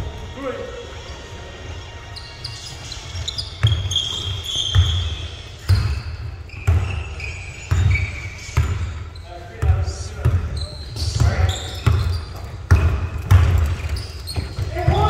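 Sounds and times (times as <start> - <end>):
high squeaks: 2.0 - 9.7, 10.5 - 13.0, 13.6 - 14.8
basketball bouncing on gym court: 3.6 - 15.0.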